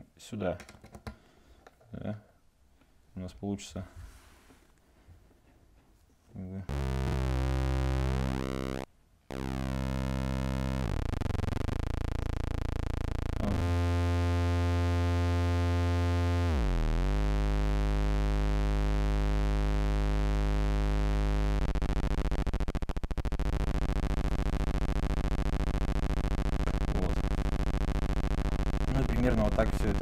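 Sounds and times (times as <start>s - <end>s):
harsh square-wave synthesizer drone: 6.7s - 30.0s
rapid stuttering buzz: 6.7s - 30.0s.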